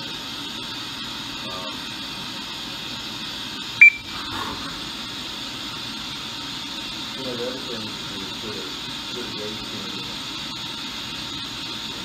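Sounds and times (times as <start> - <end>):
short high beep: 3.8 - 4.0.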